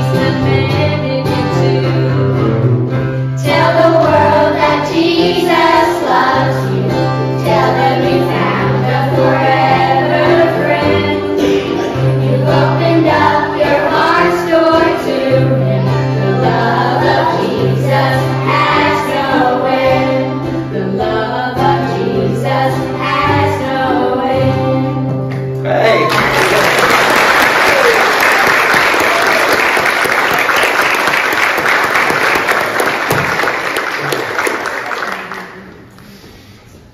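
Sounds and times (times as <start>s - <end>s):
acoustic guitar: 0.0s - 28.0s
group singing a hymn: 3.4s - 25.2s.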